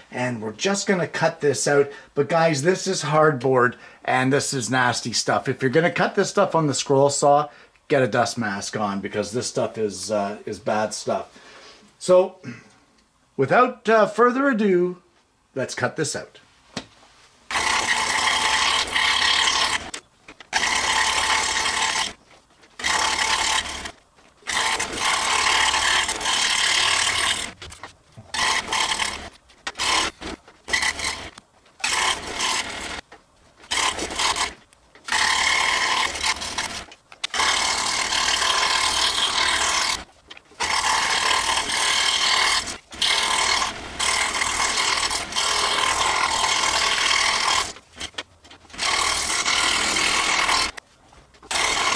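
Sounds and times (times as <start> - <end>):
scroll saw cutting hardboard: 17.5 - 50.8, 51.4 - 51.9.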